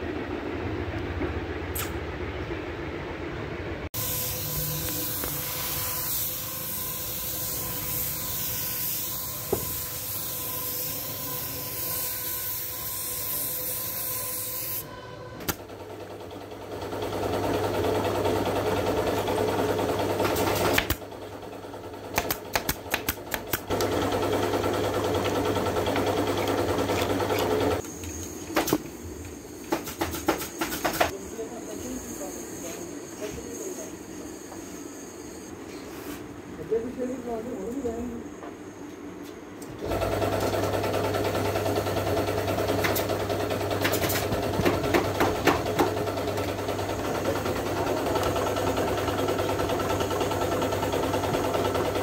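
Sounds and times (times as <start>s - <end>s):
spray gun hissing: 4.0s - 14.8s.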